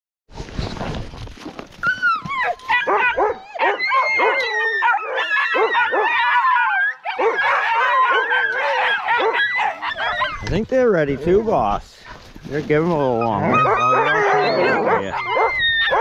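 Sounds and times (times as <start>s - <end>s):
dogs yipping barking and howling: 1.8s - 10.5s, 13.0s - 16.0s
rustling: 11.7s - 13.6s.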